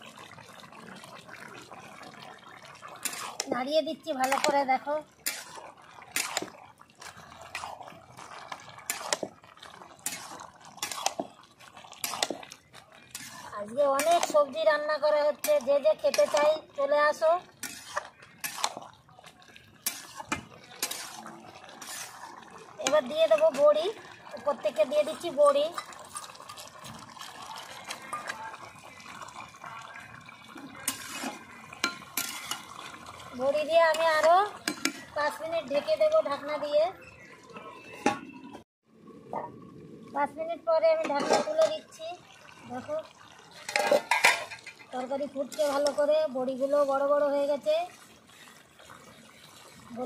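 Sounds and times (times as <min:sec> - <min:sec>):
curry simmering: 0:00.0 - 0:50.0
spatula scraping metal pan: 0:03.0 - 0:06.6, 0:08.8 - 0:09.3, 0:10.0 - 0:11.4, 0:12.0 - 0:12.4, 0:13.0 - 0:14.5, 0:17.5 - 0:18.8, 0:19.8 - 0:22.2, 0:30.8 - 0:32.7, 0:43.6 - 0:46.0.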